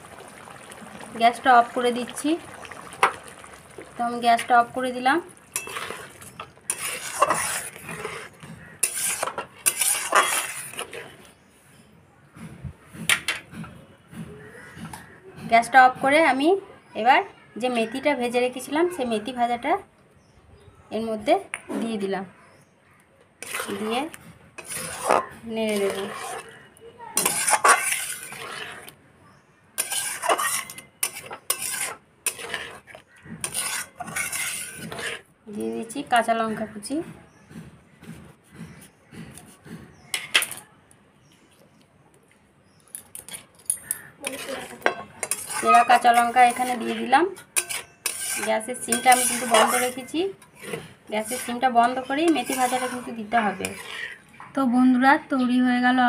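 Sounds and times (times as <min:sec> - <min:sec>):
metal spatula scraping in pan: 0:00.0 - 0:11.4, 0:23.4 - 0:29.0, 0:29.7 - 0:35.3, 0:43.1 - 0:54.4.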